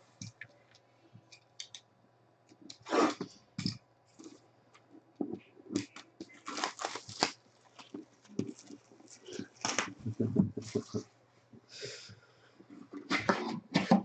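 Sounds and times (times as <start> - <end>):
plastic wrap crinkling and ripping: 5.8 - 10.1.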